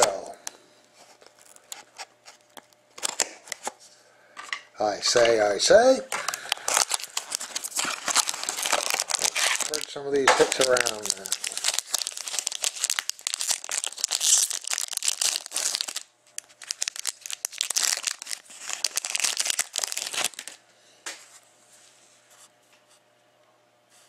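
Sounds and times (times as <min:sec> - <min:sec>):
foil wrapper crinkling: 0:01.0 - 0:03.7, 0:06.1 - 0:20.6.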